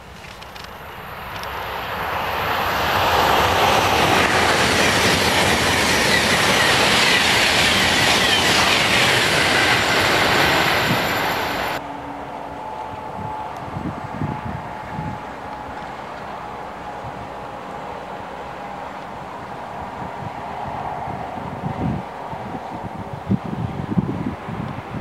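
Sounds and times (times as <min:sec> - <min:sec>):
high-speed train passing: 0:00.0 - 0:25.0.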